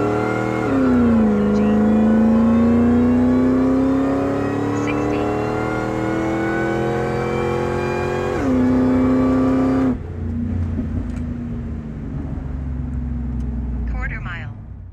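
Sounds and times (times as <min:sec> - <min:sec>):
truck engine revving: 0:00.0 - 0:11.2.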